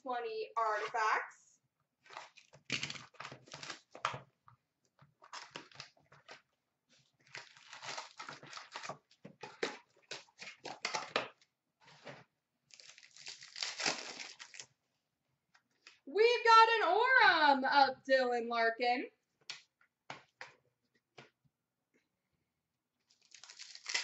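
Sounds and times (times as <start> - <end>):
wrapper crinkling and tearing: 2.0 - 4.2, 5.2 - 6.4, 7.0 - 11.3, 12.7 - 14.7, 23.1 - 24.0.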